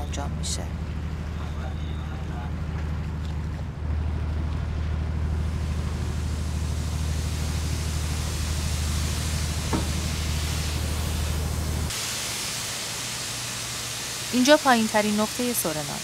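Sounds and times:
ship machinery drone: 0:00.0 - 0:16.0
wind and sea hiss: 0:05.1 - 0:16.0.

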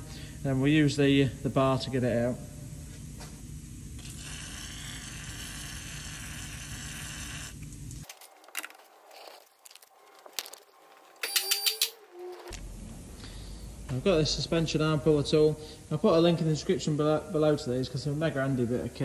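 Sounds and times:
metallic clicks: 0:11.2 - 0:12.0.

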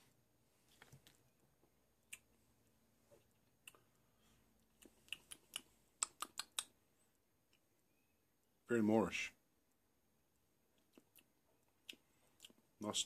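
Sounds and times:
mouth clicks and lip smacks: 0:02.0 - 0:02.4, 0:03.2 - 0:04.0, 0:04.6 - 0:06.8, 0:10.7 - 0:12.8.

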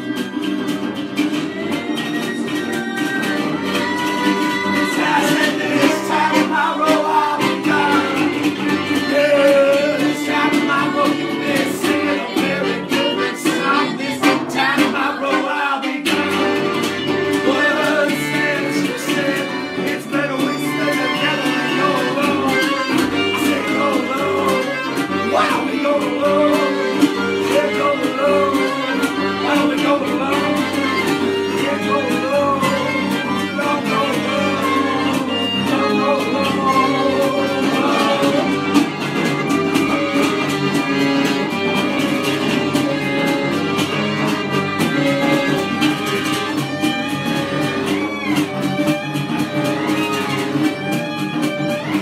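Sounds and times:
resonator guitar strummed: 0:00.0 - 0:52.0
string instrument playing along: 0:00.0 - 0:52.0
man singing: 0:01.2 - 0:43.5.

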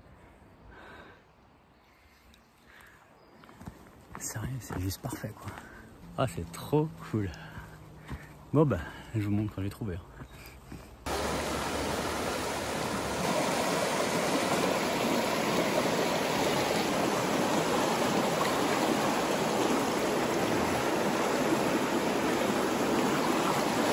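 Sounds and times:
river rushing over rapids: 0:11.1 - 0:23.9.

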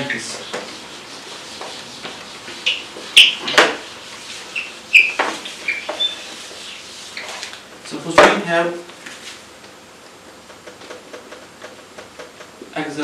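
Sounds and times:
eraser squeaking on whiteboard: 0:00.0 - 0:07.6.

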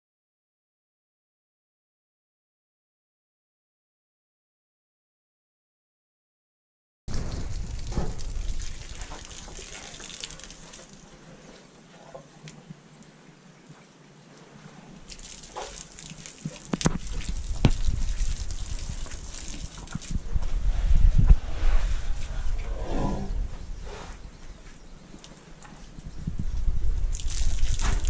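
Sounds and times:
low rumble: 0:07.1 - 0:09.4, 0:20.1 - 0:24.2
water gushing from a hose: 0:07.1 - 0:11.6, 0:15.0 - 0:20.2, 0:27.0 - 0:28.0.

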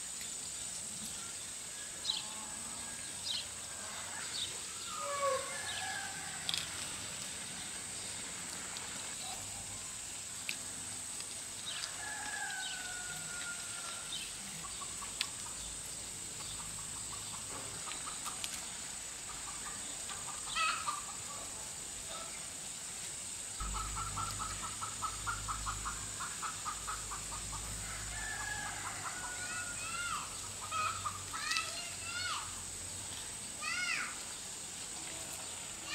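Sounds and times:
steady high-pitched hiss: 0:00.0 - 0:35.9
rooster crowing: 0:02.0 - 0:06.9, 0:11.8 - 0:14.3, 0:27.4 - 0:31.0
low rumble: 0:23.6 - 0:26.4
chickens clucking: 0:23.6 - 0:27.8.

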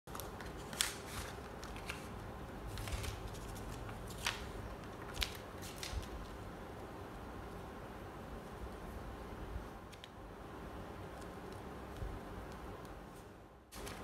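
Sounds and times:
cardboard and paper rustling: 0:00.1 - 0:06.4.

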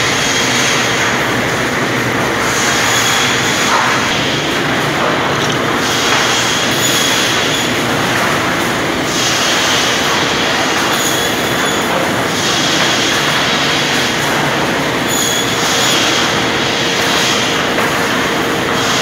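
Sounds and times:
crosscut saw machine noise: 0:00.0 - 0:19.0
saw blade squealing whine: 0:06.4 - 0:07.8, 0:11.0 - 0:11.9, 0:15.1 - 0:16.0.

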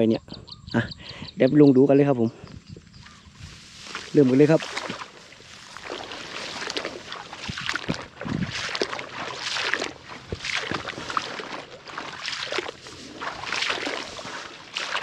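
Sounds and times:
footsteps wading through water: 0:02.8 - 0:15.0
dull low thumps: 0:07.3 - 0:09.0.

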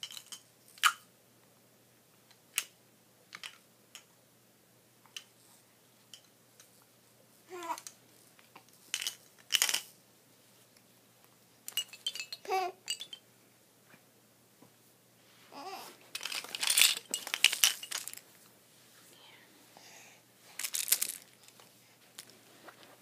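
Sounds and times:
plastic toys rattling: 0:00.0 - 0:00.9, 0:08.8 - 0:10.0, 0:11.7 - 0:13.2, 0:16.1 - 0:18.3, 0:20.5 - 0:21.6
infant babbling and cooing: 0:07.5 - 0:07.9, 0:12.4 - 0:12.8, 0:15.5 - 0:16.0.

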